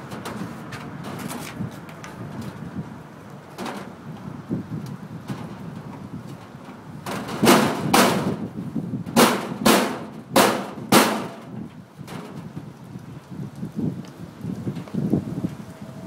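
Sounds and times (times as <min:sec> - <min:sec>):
scraping knocks on metal fixture: 0:07.0 - 0:08.4, 0:09.2 - 0:12.4.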